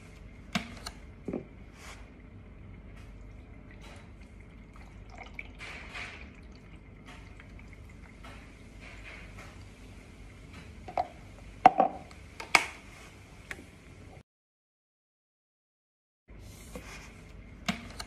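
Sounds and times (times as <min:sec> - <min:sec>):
water trickling and dripping: 0:02.2 - 0:11.2.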